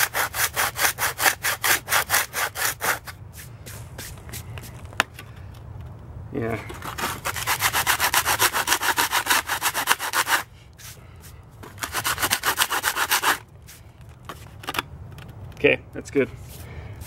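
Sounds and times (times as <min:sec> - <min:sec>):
hand sanding concrete: 0:00.0 - 0:04.4, 0:06.7 - 0:11.0, 0:11.7 - 0:13.8.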